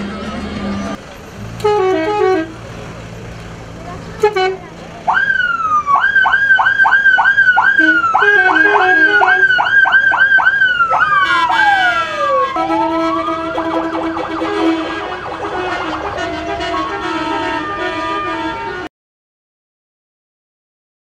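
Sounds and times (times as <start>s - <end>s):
steady horn-like tone: 1.6s - 2.6s, 7.8s - 9.5s, 11.2s - 18.9s
siren yelp and wail: 5.1s - 18.9s
warbling siren: 5.1s - 18.9s.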